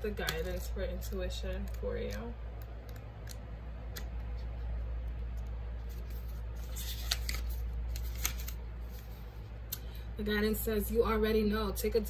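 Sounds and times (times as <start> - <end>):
electric fan humming: 0.0 - 12.0
paper pages rustling: 4.0 - 9.5.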